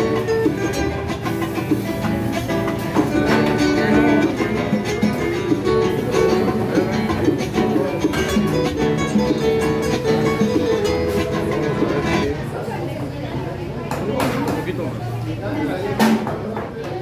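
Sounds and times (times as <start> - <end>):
latin music on acoustic guitars: 0.0 - 17.0.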